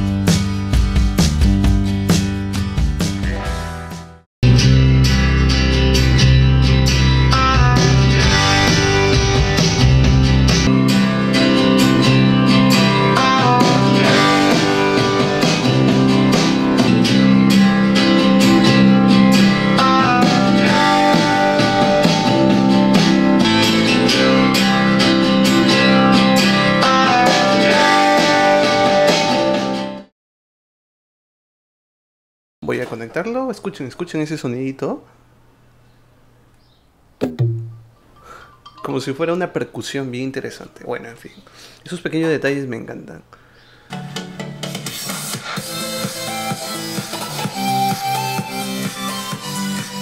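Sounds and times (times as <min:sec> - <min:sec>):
guitar music through loudspeakers: 0:00.0 - 0:30.0.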